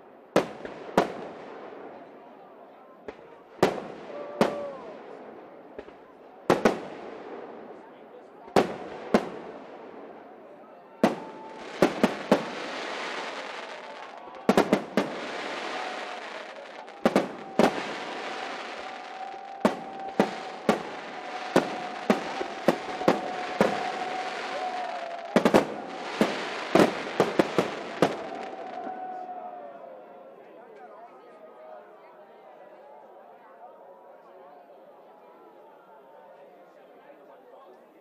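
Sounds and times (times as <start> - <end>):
firework bursts banging: 14.5 - 28.5.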